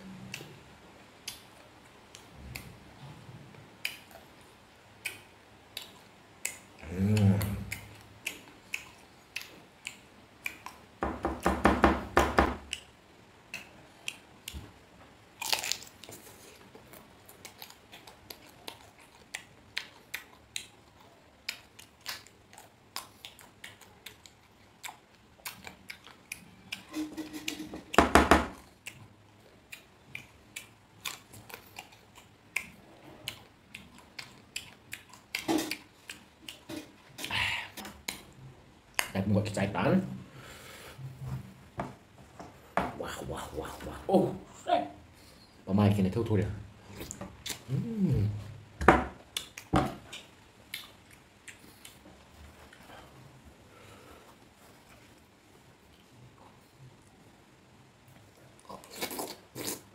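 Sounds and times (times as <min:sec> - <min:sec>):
chewing and crunching: 0:15.4 - 0:27.9, 0:28.6 - 0:37.4, 0:49.3 - 0:53.2, 0:58.1 - 0:59.9.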